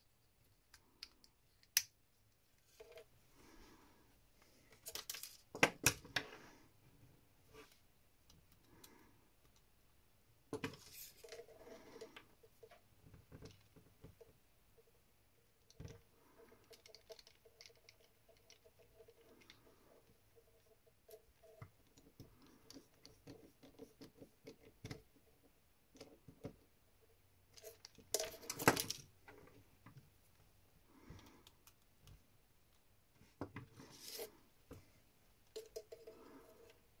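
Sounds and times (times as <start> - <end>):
parts clattering: 27.5 - 29.8.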